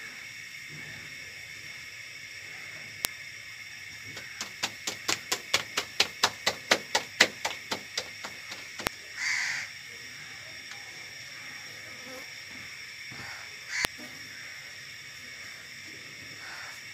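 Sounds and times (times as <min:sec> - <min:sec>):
dough hissing on hot iron: 0:00.0 - 0:10.4
dough slapped between palms: 0:04.2 - 0:08.9.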